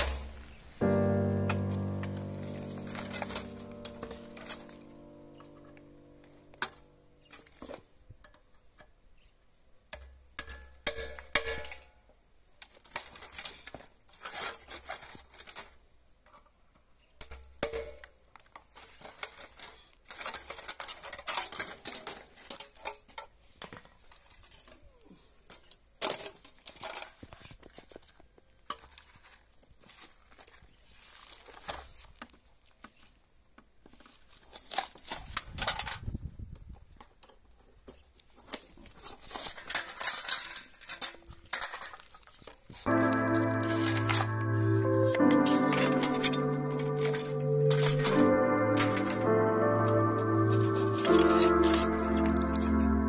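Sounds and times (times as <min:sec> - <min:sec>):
scraping and crinkling: 0:12.6 - 0:16.6, 0:17.8 - 0:33.2, 0:33.8 - 0:36.1, 0:37.0 - 0:44.3.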